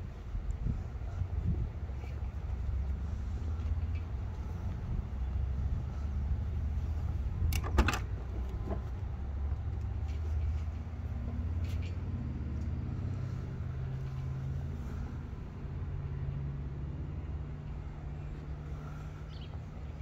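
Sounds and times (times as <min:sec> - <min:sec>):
steady low rumble: 0:00.0 - 0:20.0
car door latch clicking: 0:07.5 - 0:08.1.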